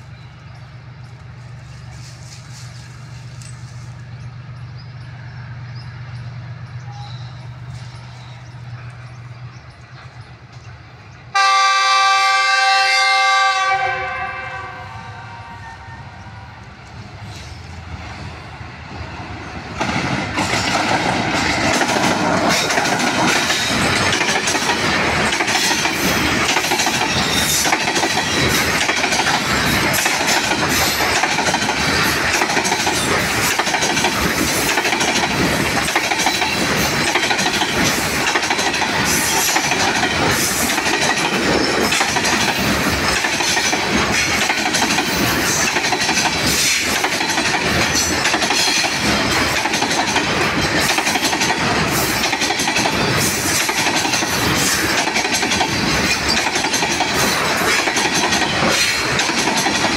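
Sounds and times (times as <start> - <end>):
train wheels clattering over rail joints: 0.0 - 11.3, 16.8 - 59.9.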